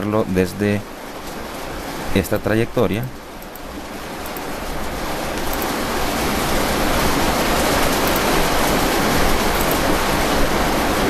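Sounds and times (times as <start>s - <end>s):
loud background hiss: 0.0s - 11.0s.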